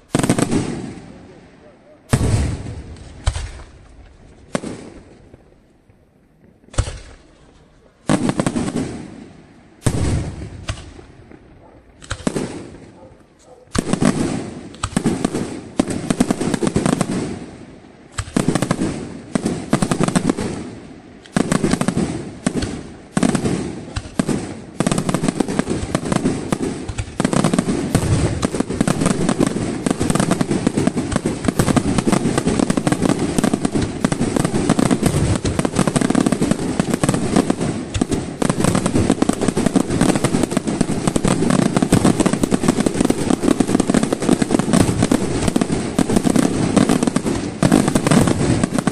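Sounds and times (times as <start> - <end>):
firework shells bursting: 2.0 - 5.5, 6.6 - 9.0, 9.8 - 17.1, 18.1 - 48.9.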